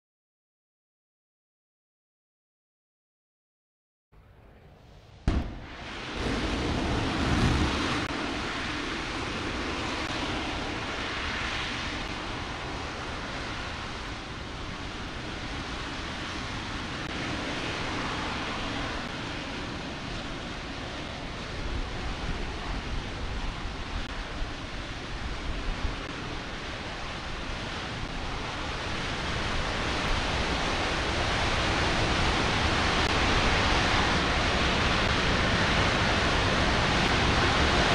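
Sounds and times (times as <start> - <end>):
rocket engine deep rushing: 4.2 - 24.2
rocket engine ignition bang: 4.6 - 8.1.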